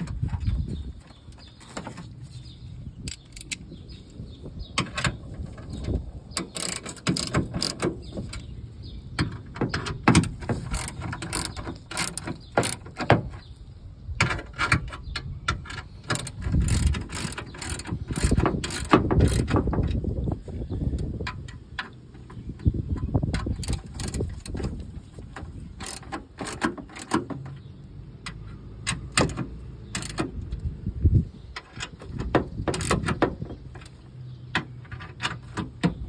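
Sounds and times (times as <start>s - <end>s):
ratchet wrench clicking: 3.1s - 3.7s, 6.4s - 8.4s, 10.1s - 13.1s, 15.4s - 20.0s, 23.4s - 24.7s, 25.8s - 27.2s, 28.2s - 30.3s.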